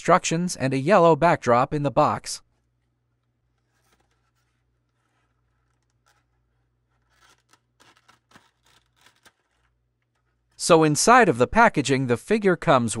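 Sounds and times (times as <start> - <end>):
plastic blister tray crinkling: 2.5 - 10.6.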